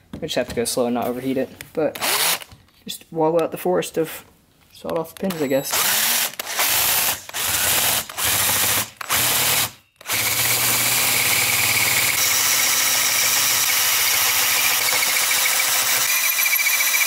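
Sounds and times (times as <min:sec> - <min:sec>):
cordless drill cutting metal: 0:02.0 - 0:02.5, 0:05.3 - 0:17.0.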